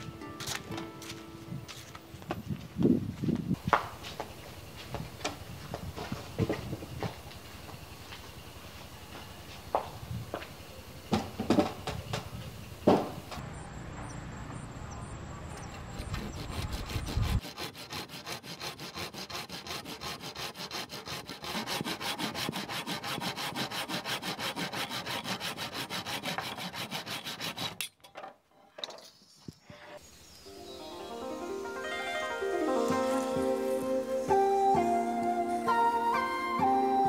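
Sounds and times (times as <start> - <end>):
hand saw cutting wood: 15.6 - 28.0.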